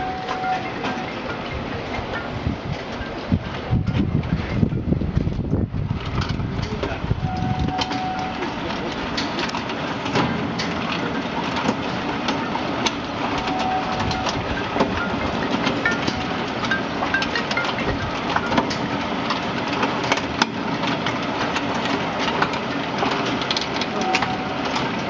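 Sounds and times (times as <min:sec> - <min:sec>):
mesh belt conveyor clattering: 0:00.0 - 0:25.0.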